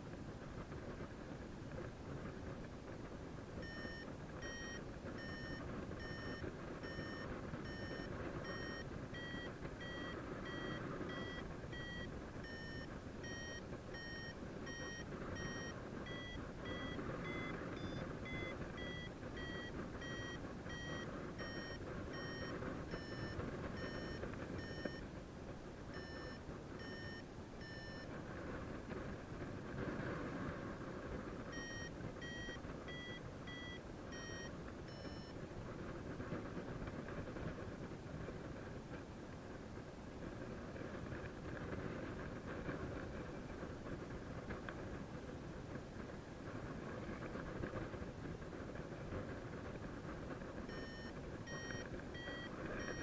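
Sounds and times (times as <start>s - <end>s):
variometer beeping: 3.6s - 25.1s, 25.9s - 28.2s, 31.4s - 35.4s, 50.6s - 53.0s.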